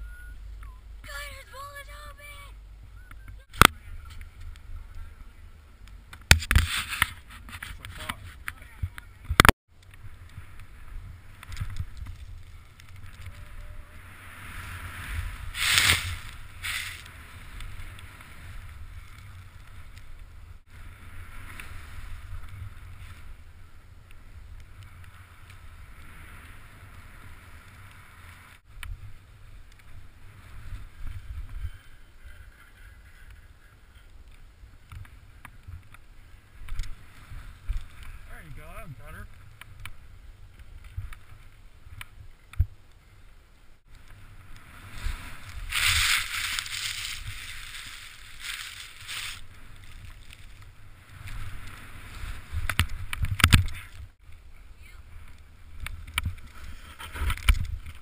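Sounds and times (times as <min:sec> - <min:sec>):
wind rumbling on camera: 0:02.3 - 0:58.0
snowboard carving through powder snow: 0:10.4 - 0:33.2, 0:44.2 - 0:53.2.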